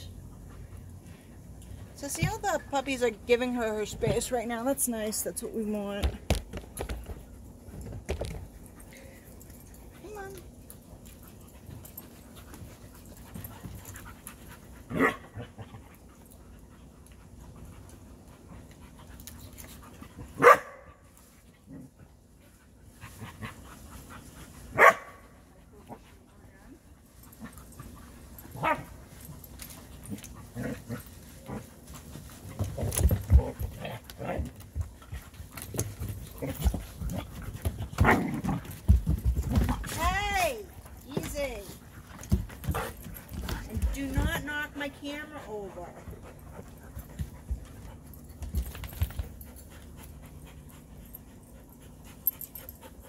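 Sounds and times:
dogs panting: 0.0 - 6.0, 6.8 - 39.9, 40.7 - 53.0
dog barking: 15.0 - 15.2, 20.4 - 20.9, 24.8 - 25.2.

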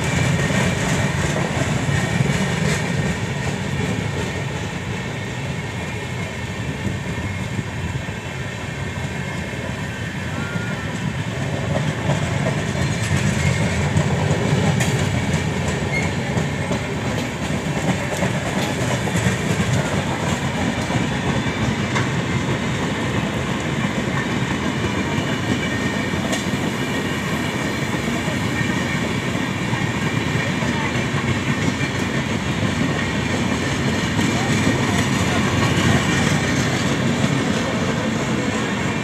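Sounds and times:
train wheels rumbling on rails: 0.0 - 39.0
sharp rail clicks: 11.7 - 22.2.

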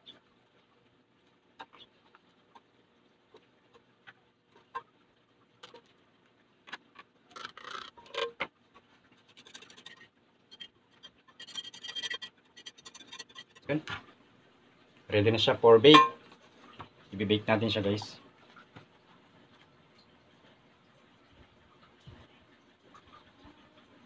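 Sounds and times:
scraping bowl: 9.1 - 13.8.

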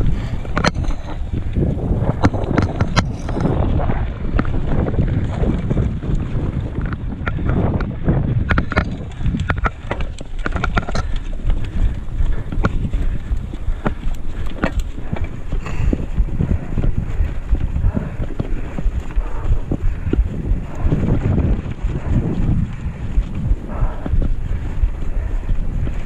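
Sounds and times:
bike clicks and knocks: 0.0 - 3.6, 4.3 - 21.1
bike rattling on dirt trail: 0.0 - 26.0
wind buffeting microphone: 0.0 - 26.0.

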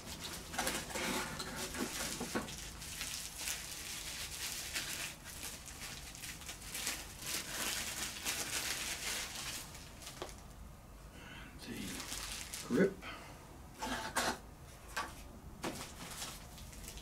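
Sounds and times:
bubble wrap crinkling: 0.0 - 10.5, 11.8 - 12.8, 15.6 - 17.0.

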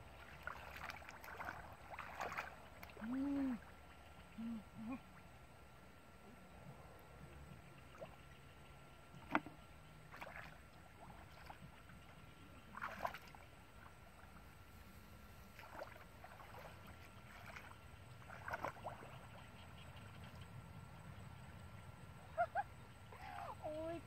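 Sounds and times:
splashing in shallow water: 0.0 - 5.3, 9.1 - 14.6, 15.4 - 19.6.

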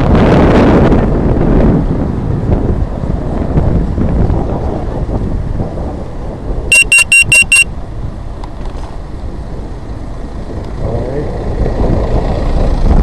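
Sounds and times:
wind rumbling on microphone: 0.0 - 13.0
rapid electronic beeps: 6.7 - 7.7.

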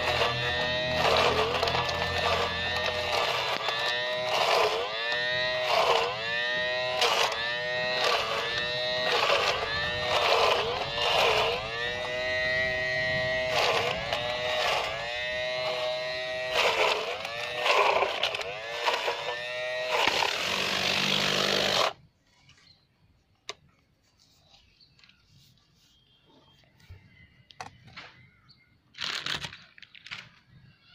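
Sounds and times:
small electric motor whine: 0.0 - 22.5.

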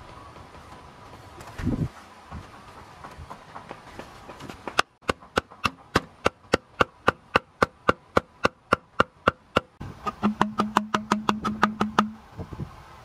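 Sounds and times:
bamboo mallet knocking on bamboo: 5.0 - 12.2.

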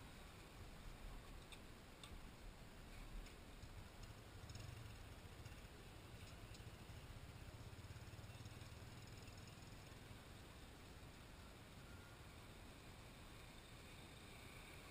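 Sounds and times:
faint low hum: 0.0 - 14.9
faint ticks: 2.9 - 7.0.

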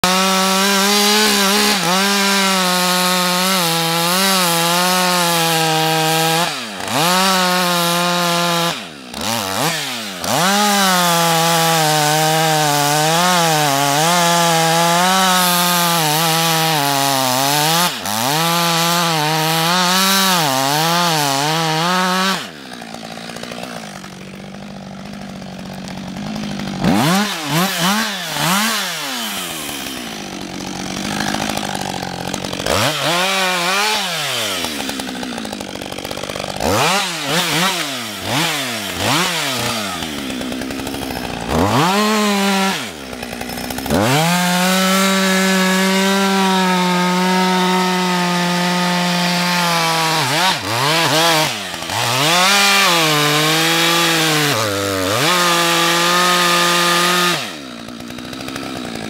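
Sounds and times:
chainsaw cutting into tree trunk: 0.0 - 59.0.

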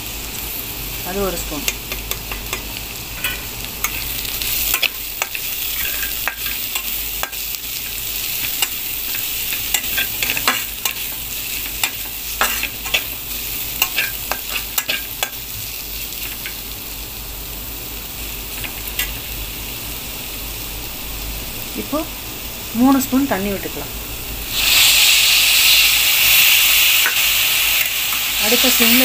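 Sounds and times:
vegetables sizzling in oil: 0.0 - 29.0
spatula scraping a pan: 3.2 - 13.2.

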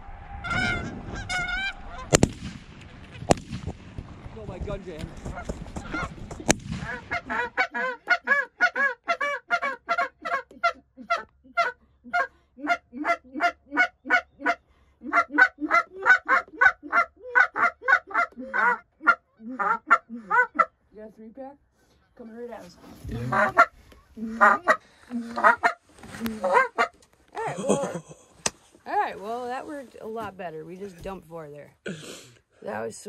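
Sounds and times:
gunshot: 0.0 - 4.2, 6.4 - 7.0
geese honking: 0.4 - 2.2, 6.8 - 20.7, 23.0 - 27.0.

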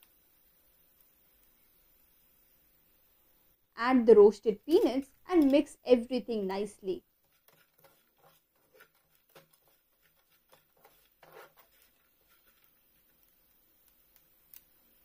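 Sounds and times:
spatula scraping frying pan: 7.2 - 13.5.

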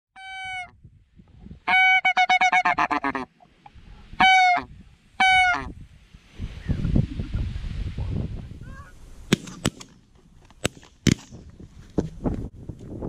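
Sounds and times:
goose honks: 0.2 - 0.7, 1.7 - 3.3, 4.2 - 5.7.

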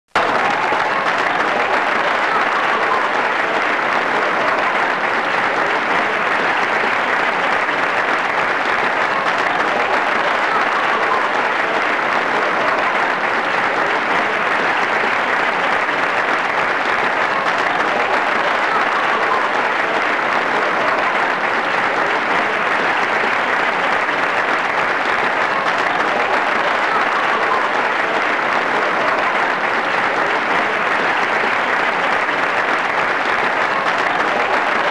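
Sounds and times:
crowd applause: 0.0 - 34.9.

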